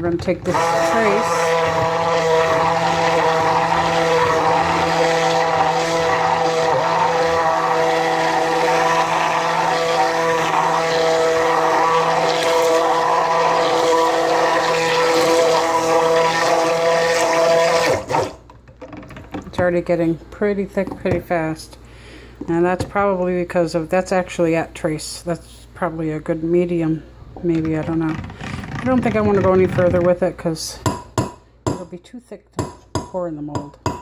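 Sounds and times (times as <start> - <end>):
stick blender running: 0.1 - 18.5.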